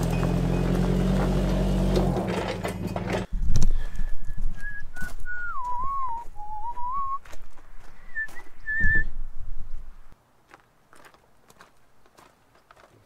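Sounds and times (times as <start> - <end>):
footsteps on gravel: 3.2 - 9.0, 9.8 - 13.0
man whistling a tune: 4.2 - 7.2, 8.0 - 9.1.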